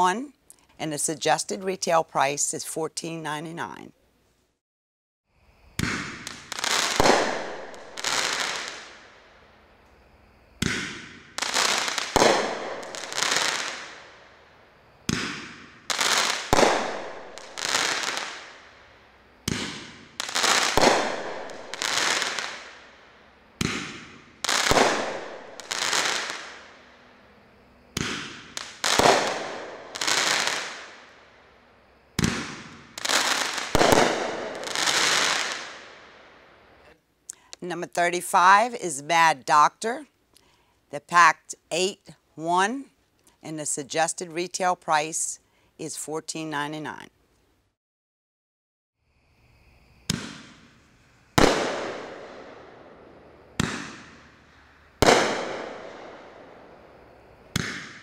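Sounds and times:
firework bangs: 5.8s - 9.2s, 10.6s - 14.2s, 15.0s - 18.7s, 19.4s - 22.9s, 23.6s - 26.9s, 27.9s - 31.2s, 32.2s - 36.3s, 50.1s - 58.0s.

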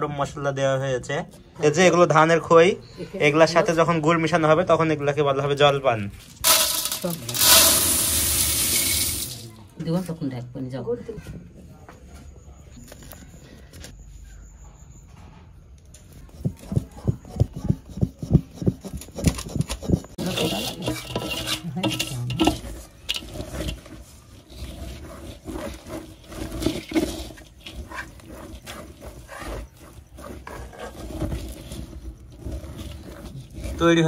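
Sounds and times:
utensil clatter: 6.4s - 9.4s, 16.2s - 34.0s
spatula scraping metal pan: 17.3s - 34.0s.

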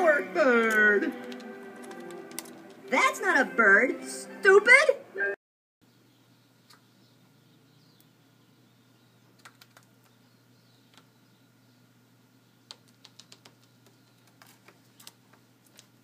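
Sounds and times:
bird claws clicking on wood: 0.7s - 2.8s, 12.7s - 15.9s.

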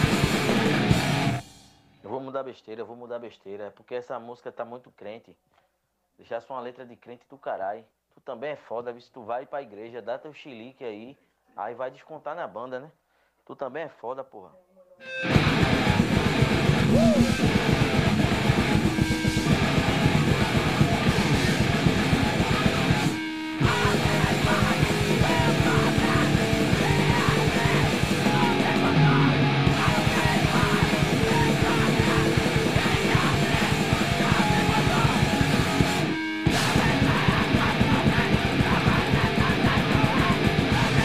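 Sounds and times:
punk rock band playing: 0.0s - 1.5s, 15.0s - 41.0s.

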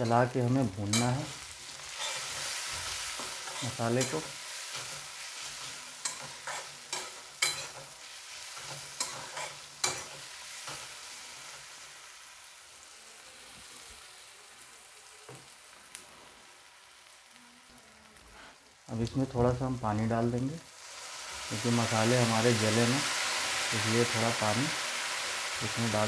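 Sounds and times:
spices sizzling in oil: 0.0s - 26.0s
metal spatula scraping a pan: 0.9s - 10.9s.

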